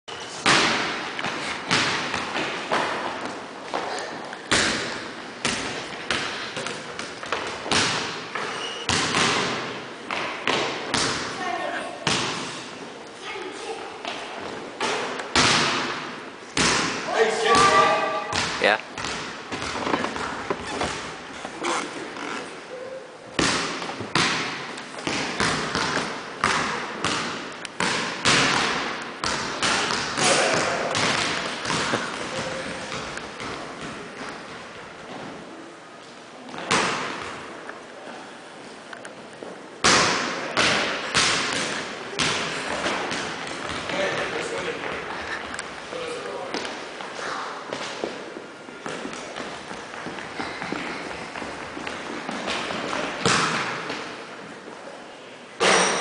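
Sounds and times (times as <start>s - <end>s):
basketballs bouncing on hardwood: 0.5s - 3.8s, 4.5s - 11.3s, 16.6s - 21.2s, 23.4s - 35.2s, 39.8s - 45.0s, 48.8s - 54.1s
basketball bouncing on hardwood floor: 23.4s - 34.3s.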